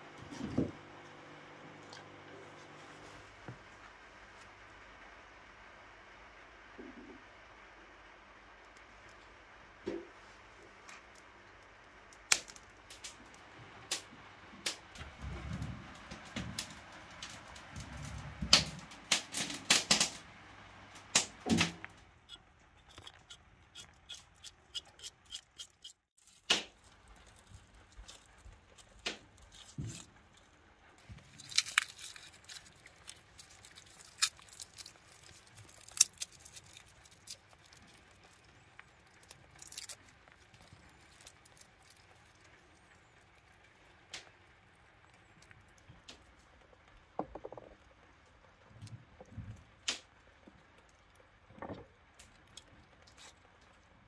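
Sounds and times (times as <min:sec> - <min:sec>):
sharp clicks and snaps: 0:12.1 - 0:15.0, 0:16.0 - 0:20.2, 0:49.8 - 0:50.2
garlic skins being peeled: 0:12.1 - 0:15.2, 0:15.8 - 0:47.2, 0:47.8 - 0:53.8.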